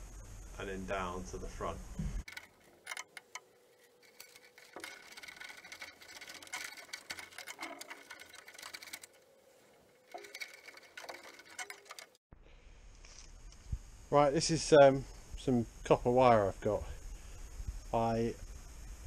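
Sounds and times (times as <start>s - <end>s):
wire clicking against metal: 2.3s - 12.2s.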